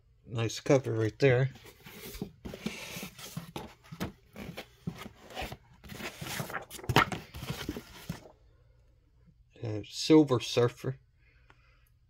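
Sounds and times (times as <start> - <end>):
paper and cardboard rustling: 1.0 - 8.4.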